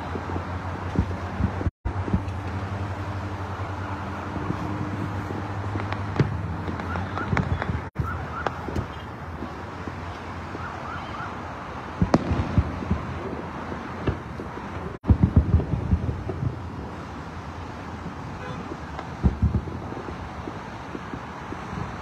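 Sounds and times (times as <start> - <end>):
distant fireworks booming: 0.0 - 22.0
highway traffic noise: 0.0 - 22.0
faint siren yelping: 6.7 - 9.0, 10.1 - 11.6.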